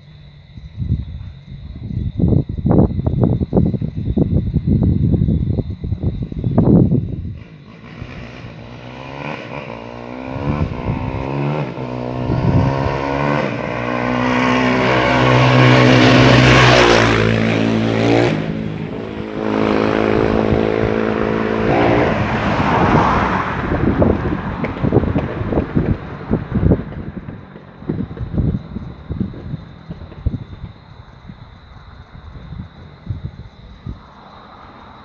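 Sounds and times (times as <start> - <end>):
vehicle passing by: 6.6 - 29.8, 33.5 - 35.0.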